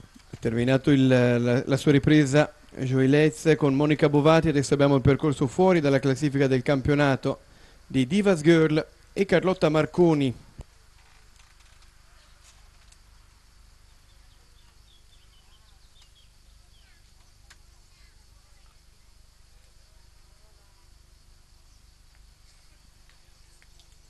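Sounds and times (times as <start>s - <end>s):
faint chirps: 11.0s - 24.0s.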